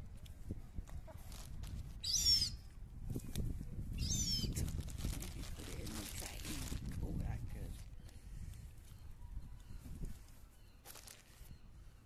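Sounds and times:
gull squealing calls: 0:02.0 - 0:02.6, 0:04.0 - 0:04.5.

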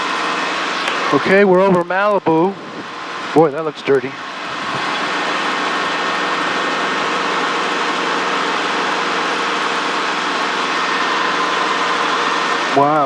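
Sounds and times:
faint steady whining tones: 0:00.0 - 0:13.0
helicopter cabin rushing hiss: 0:01.0 - 0:07.1.

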